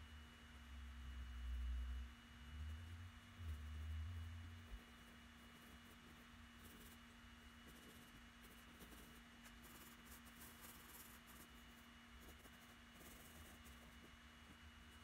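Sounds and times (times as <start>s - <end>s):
steady electrical hum: 0.0s - 15.0s
pencil scratching on paper: 4.8s - 14.6s.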